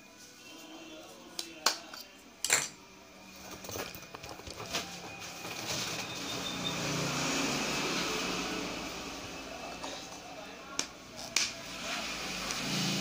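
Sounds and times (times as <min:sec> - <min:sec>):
vehicle passing by: 0:06.2 - 0:09.8, 0:11.6 - 0:13.0.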